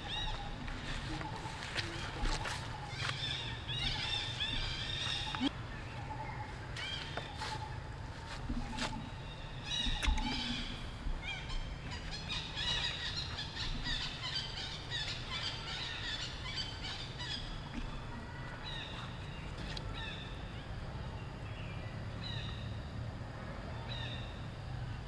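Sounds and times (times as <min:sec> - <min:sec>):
monkeys squeaking and chirping: 0:00.0 - 0:05.5.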